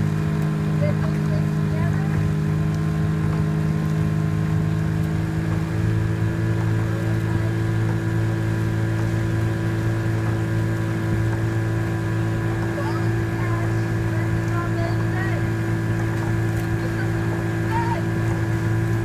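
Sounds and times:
outboard motor running: 0:00.0 - 0:19.0.

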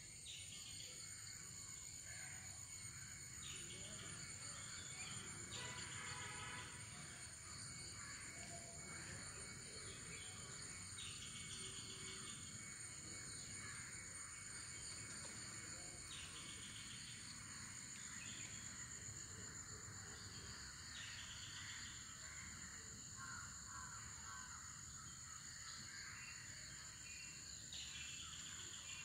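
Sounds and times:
insect drone with pulsed trill: 0:00.0 - 0:29.0.

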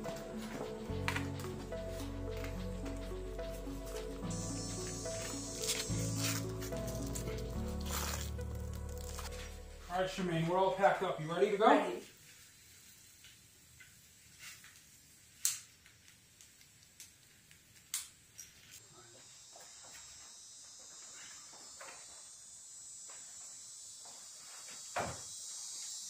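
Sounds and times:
crickets chirping: 0:00.0 - 0:10.6, 0:18.3 - 0:26.0.

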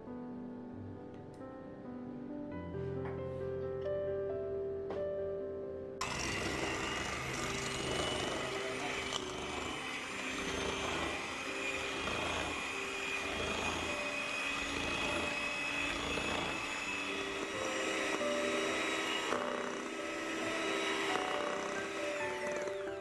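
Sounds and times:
beaters whisking in metal bowl: 0:06.0 - 0:23.0
electric hand mixer whining: 0:06.0 - 0:23.0.

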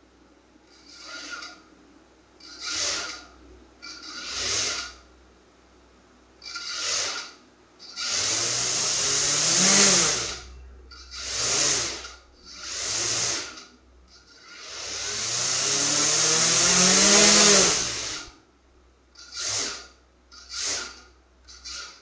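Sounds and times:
quadcopter propellers whirring: 0:08.3 - 0:10.3, 0:14.9 - 0:18.2.

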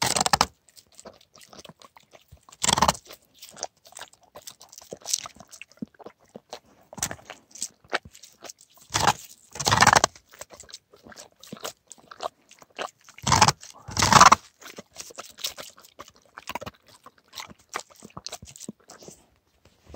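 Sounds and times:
dog licking ice: 0:00.0 - 0:19.4
ice crunching: 0:02.5 - 0:03.4, 0:07.0 - 0:10.6, 0:13.1 - 0:15.8.

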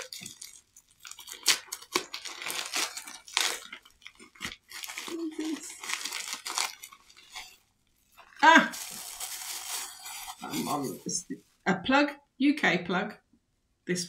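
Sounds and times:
packaging crinkling and tearing: 0:00.0 - 0:11.2.

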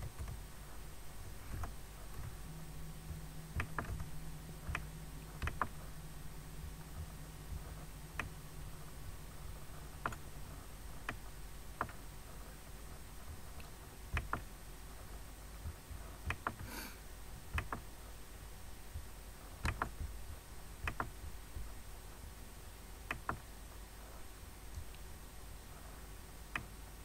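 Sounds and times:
low steady hum: 0:00.0 - 0:27.0
computer mouse clicks: 0:04.7 - 0:05.8, 0:10.0 - 0:10.3, 0:13.6 - 0:14.5, 0:16.3 - 0:16.8, 0:17.5 - 0:17.8, 0:19.6 - 0:20.1, 0:20.8 - 0:21.1.

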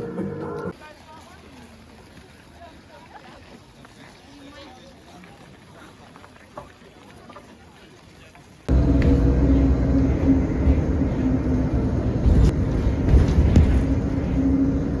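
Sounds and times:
faint hum: 0:08.7 - 0:15.0
vehicle cabin rumble: 0:08.7 - 0:15.0.

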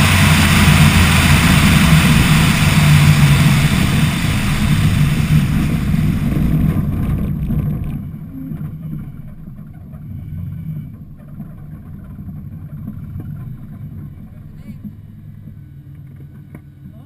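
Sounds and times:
wind rush: 0:00.0 - 0:08.2
road noise: 0:00.0 - 0:11.0
low engine rumble: 0:00.0 - 0:17.0.

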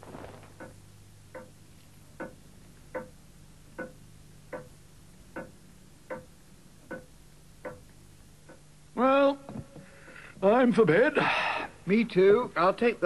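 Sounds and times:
clock ticking: 0:00.6 - 0:01.6, 0:02.2 - 0:08.7.

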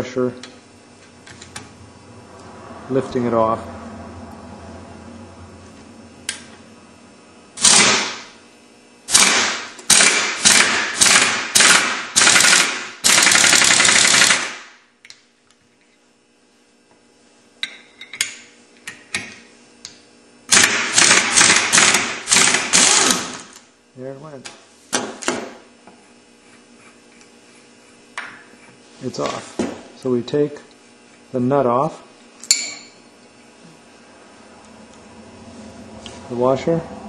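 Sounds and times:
impact wrench hammering: 0:07.6 - 0:08.4, 0:09.1 - 0:14.7, 0:20.5 - 0:23.6, 0:32.4 - 0:33.0.

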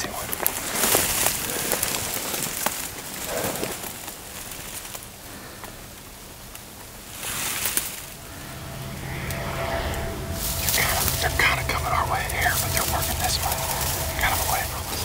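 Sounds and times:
dry grass rustling against clothing: 0:00.0 - 0:06.0, 0:07.0 - 0:08.2, 0:10.4 - 0:15.0
light crackles: 0:00.0 - 0:09.4.

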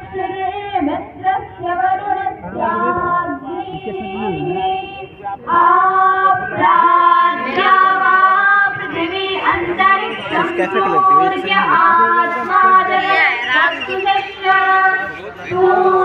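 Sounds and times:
girls chanting over loudspeaker: 0:05.5 - 0:16.0.

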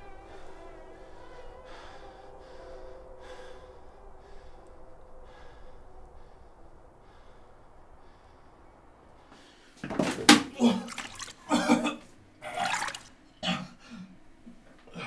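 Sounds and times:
man gasping breaths: 0:00.3 - 0:09.8.

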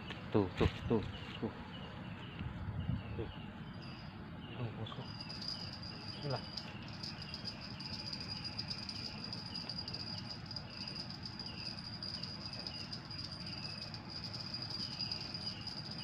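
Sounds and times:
insects trilling: 0:03.2 - 0:16.0.

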